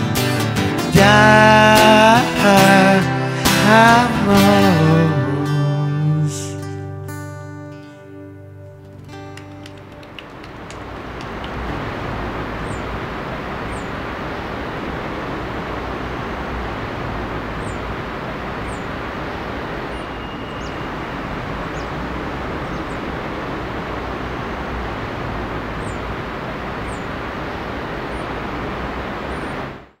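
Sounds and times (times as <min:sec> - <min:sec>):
city traffic noise: 0:00.0 - 0:29.9
faint high chirps: 0:19.8 - 0:22.0.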